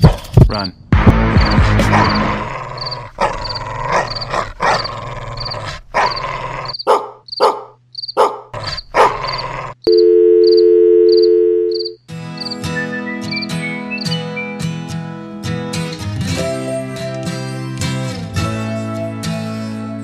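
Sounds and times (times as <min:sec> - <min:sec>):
dog barking: 0:01.8 - 0:02.3, 0:03.2 - 0:09.5.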